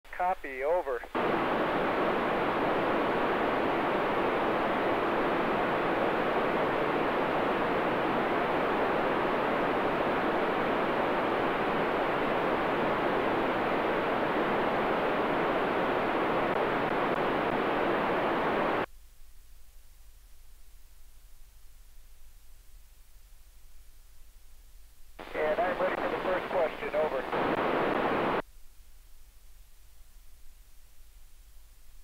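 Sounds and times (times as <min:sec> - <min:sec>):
radio receiver hiss: 0:00.1 - 0:18.9, 0:25.2 - 0:28.4.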